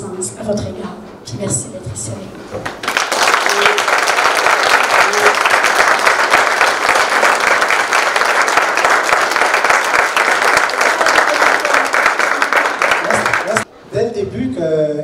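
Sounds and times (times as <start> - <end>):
audience applauding: 2.6 - 13.7.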